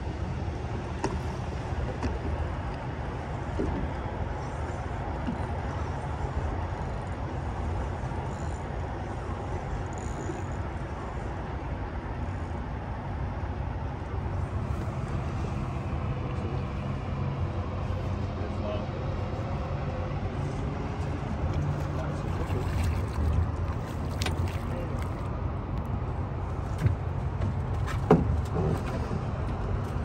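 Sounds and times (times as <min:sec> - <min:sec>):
constant low hum: 0:00.0 - 0:30.0
road traffic noise: 0:10.7 - 0:30.0.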